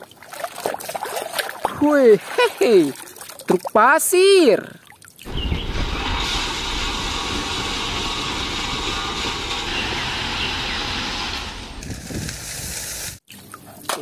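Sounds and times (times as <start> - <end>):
dump truck engine rumbling: 5.3 - 13.1
gravel pouring into truck: 5.6 - 13.2.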